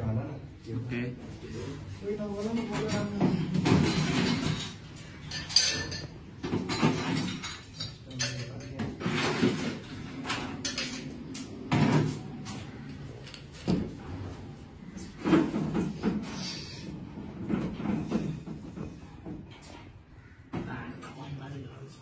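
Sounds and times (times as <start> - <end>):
glassware clattering: 2.6 - 11.2.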